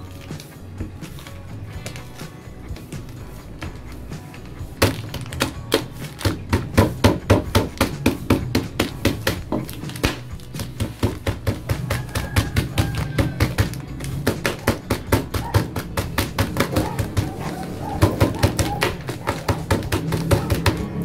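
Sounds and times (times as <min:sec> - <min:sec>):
background music: 0:00.0 - 0:21.0
fist pounding on tabletop: 0:04.8 - 0:21.0.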